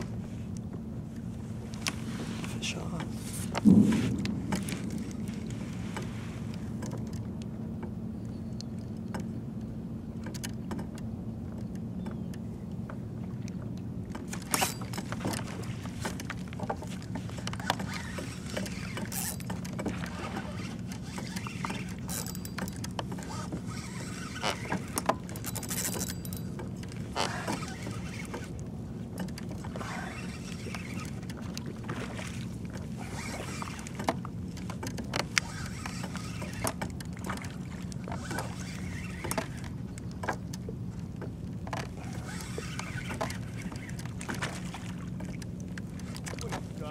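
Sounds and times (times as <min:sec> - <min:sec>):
water splashing on hull: 0:00.0 - 0:08.0, 0:08.7 - 0:46.9
steady low hum: 0:00.0 - 0:15.6
fishing reel cranking: 0:20.9 - 0:26.5.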